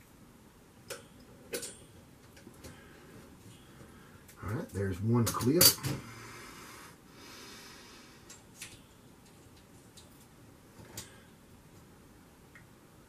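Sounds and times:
soft breathing: 2.6s - 4.4s, 6.0s - 8.4s.

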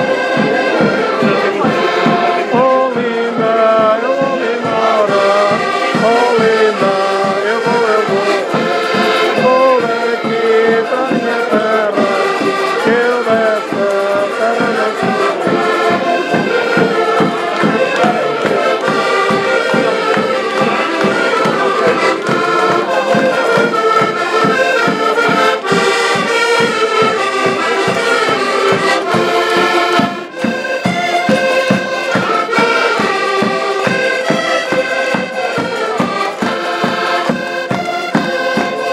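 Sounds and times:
button accordions playing folk music: 0.0s - 38.9s.

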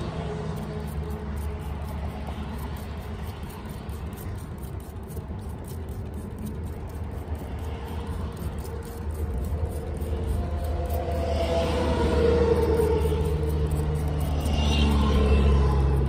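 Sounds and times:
faint engine hum: 0.0s - 16.0s
motor vehicle rumble: 0.0s - 16.0s.

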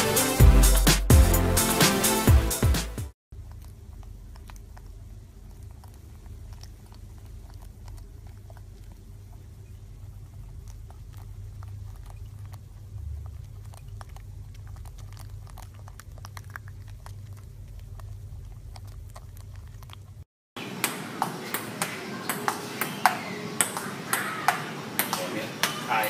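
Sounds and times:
low steady hum: 3.3s - 20.2s.

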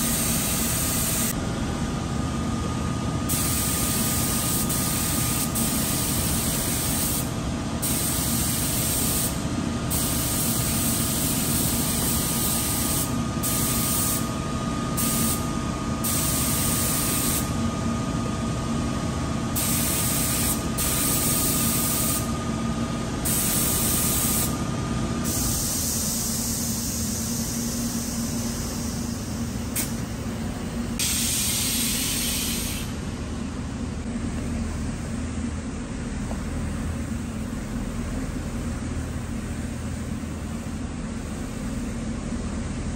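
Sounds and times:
paint spray gun hissing: 3.3s - 14.3s, 16.0s - 17.5s, 19.6s - 22.3s, 23.3s - 24.6s, 25.3s - 29.2s, 31.0s - 32.9s.

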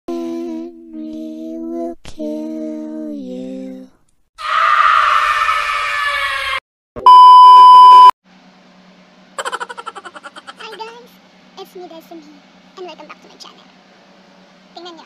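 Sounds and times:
woman screaming: 4.4s - 6.6s
test-pattern beep: 7.0s - 8.1s.

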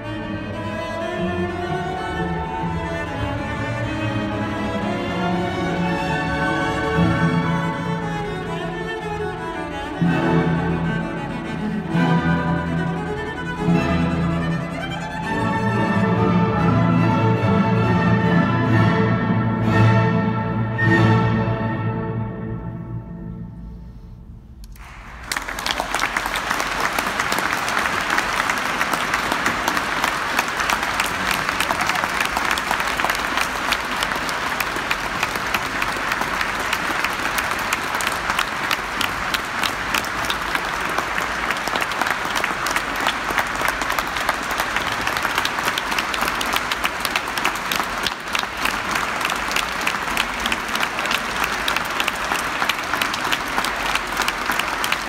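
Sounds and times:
music: 0.0s - 24.8s
audience applauding: 24.7s - 55.0s.

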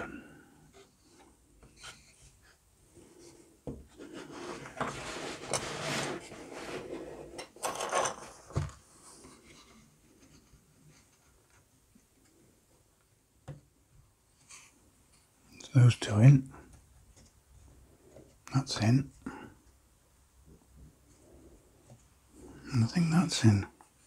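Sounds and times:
plywood rubbing and scraping: 0.7s - 11.7s.

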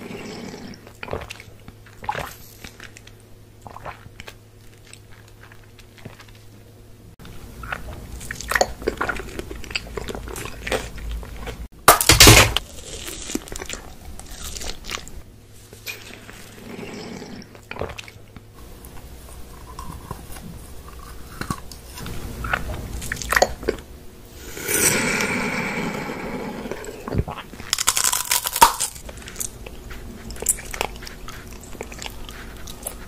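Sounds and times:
crunching and chewing candies: 7.5s - 23.8s, 26.9s - 33.0s.

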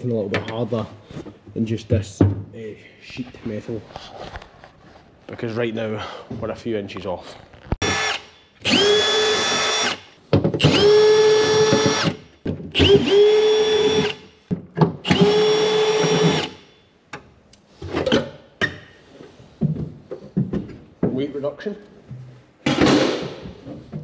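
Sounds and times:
drill boring through sheet metal: 7.8s - 12.2s, 12.8s - 14.2s, 15.1s - 16.6s.

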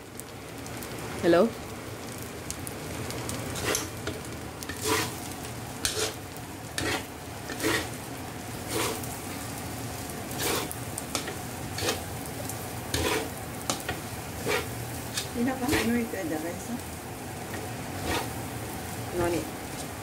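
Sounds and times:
rice sizzling in a wok: 0.0s - 20.0s
metal spatula scraping wok: 3.5s - 5.2s, 5.8s - 6.2s, 6.8s - 8.0s, 8.6s - 9.1s, 10.3s - 12.1s, 12.9s - 16.1s, 17.5s - 18.4s.

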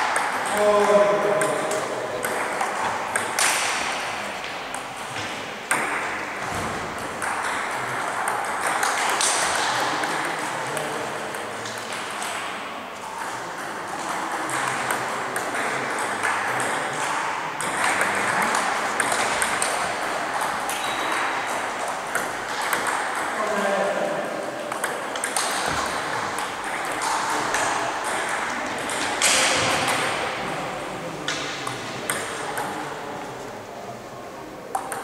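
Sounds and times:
table tennis balls clicking: 0.0s - 33.0s, 34.7s - 35.0s
sports hall hum: 0.0s - 35.0s
faint voices: 7.8s - 35.0s.

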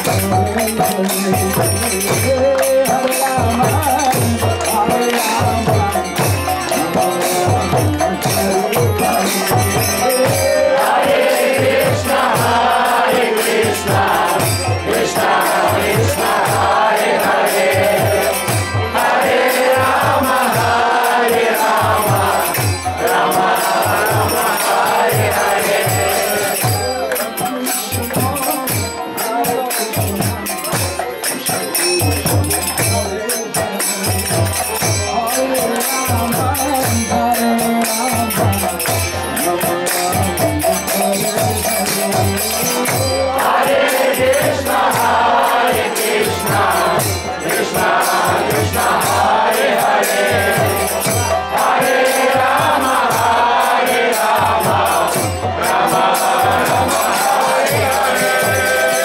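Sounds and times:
crowd singing together: 0.0s - 59.0s
fast drum beat: 0.0s - 59.0s
people clapping: 2.5s - 8.1s, 23.1s - 28.9s, 41.8s - 55.1s.

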